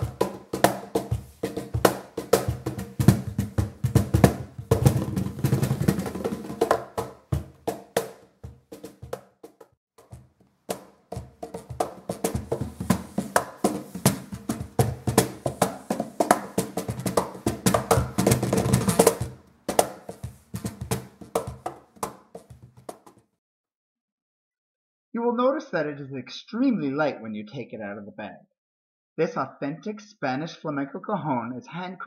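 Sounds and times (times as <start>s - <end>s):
cajon slaps and bass tones: 0.0s - 23.2s.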